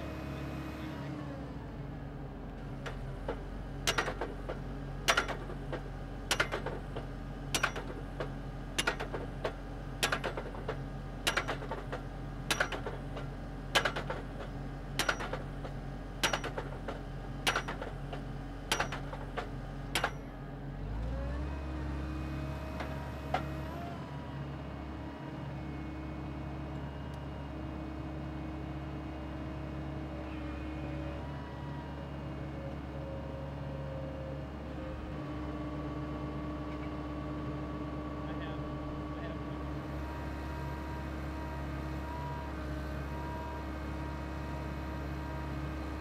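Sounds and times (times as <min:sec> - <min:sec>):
drill rig engine running: 0:02.7 - 0:20.4
drop hammer striking rods: 0:03.8 - 0:04.3, 0:05.1 - 0:14.2, 0:15.0 - 0:15.5, 0:16.2 - 0:20.3.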